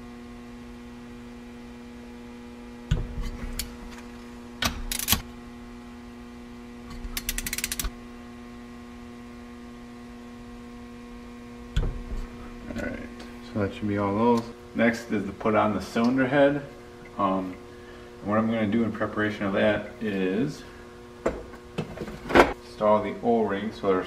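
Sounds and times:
steady electrical hum: 0.0s - 24.0s
torque wrench ratchet clicks: 7.1s - 7.9s.

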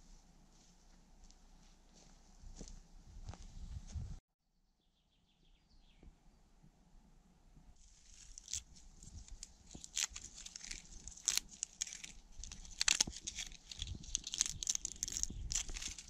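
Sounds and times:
bark tearing and crackling: 8.0s - 16.0s.

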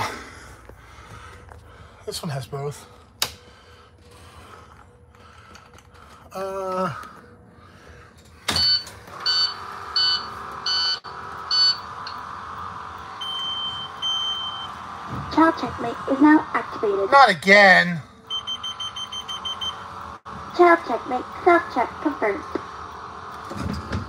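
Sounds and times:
steady hum: 0.0s - 24.0s
longer lower beeps: 8.6s - 11.9s, 13.2s - 14.8s, 18.3s - 19.8s.

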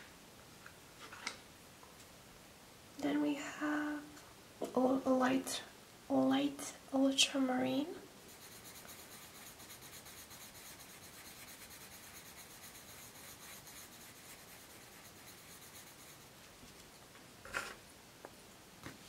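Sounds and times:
pencil scratching on paper: 8.3s - 16.4s.

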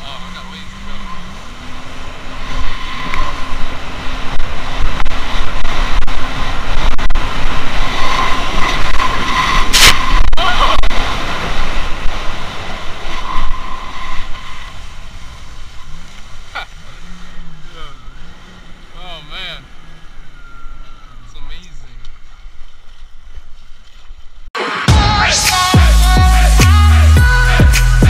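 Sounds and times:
rushing water and spray: 6.3s - 16.5s.

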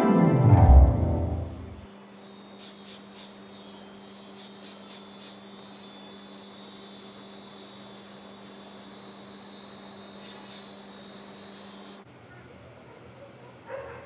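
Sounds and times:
low steady hum: 0.0s - 2.0s.

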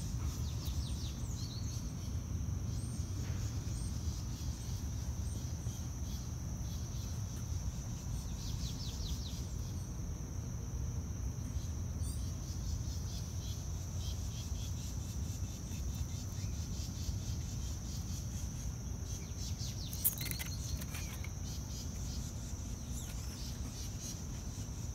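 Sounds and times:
high-pitched insect drone: 0.0s - 24.9s
bird chirps: 19.1s - 24.2s.

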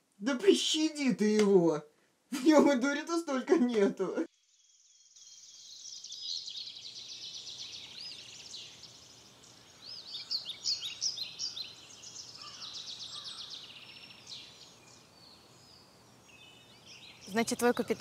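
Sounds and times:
insects chirring: 4.2s - 18.0s
birds chirping: 5.0s - 18.0s.

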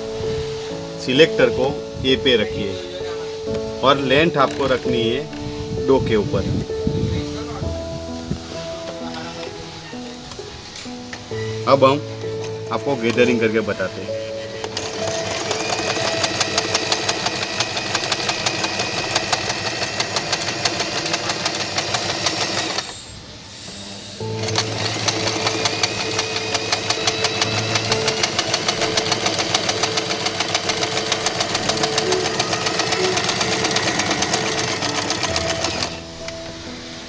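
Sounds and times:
sewing machine stitching: 14.4s - 23.0s, 24.2s - 36.0s.

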